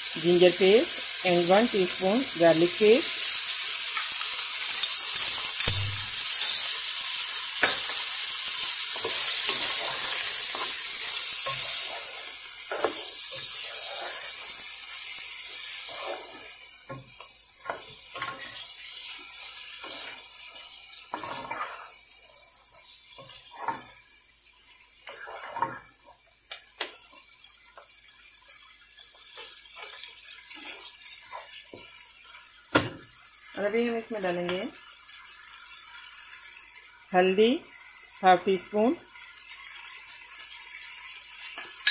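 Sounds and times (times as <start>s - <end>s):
food sizzling in hot oil: 0.0s - 41.9s
wooden spoon scraping a pan: 8.6s - 24.0s, 25.0s - 26.0s, 29.2s - 32.0s.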